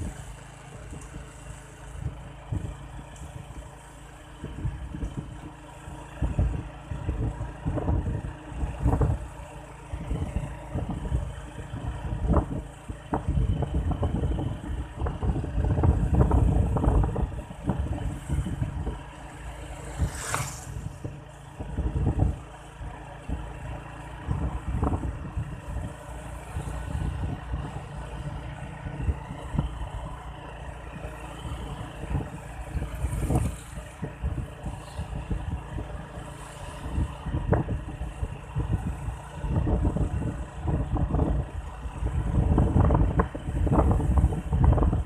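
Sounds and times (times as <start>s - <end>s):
wind buffeting microphone: 0.0s - 3.8s, 4.4s - 45.0s
brief whoosh: 19.9s - 21.1s.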